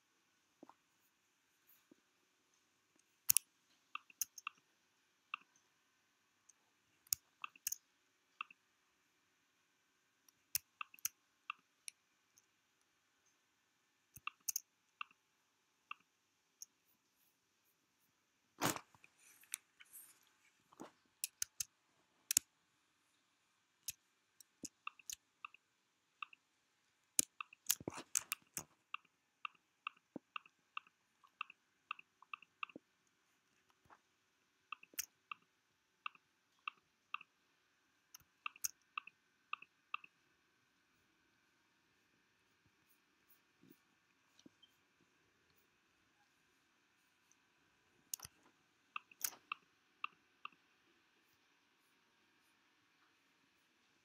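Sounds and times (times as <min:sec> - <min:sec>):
computer mouse clicks: 0:03.0 - 0:04.7, 0:06.5 - 0:08.7, 0:10.2 - 0:13.4, 0:14.1 - 0:15.2, 0:15.9 - 0:16.8, 0:20.7 - 0:21.7, 0:23.8 - 0:25.6, 0:26.2 - 0:26.4, 0:27.2 - 0:32.9, 0:34.7 - 0:37.4, 0:38.1 - 0:40.2, 0:48.1 - 0:50.7.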